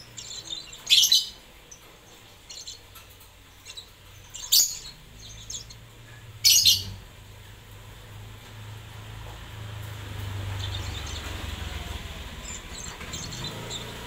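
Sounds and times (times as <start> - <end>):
lovebird chirping: 0.0 - 7.0, 10.4 - 14.0.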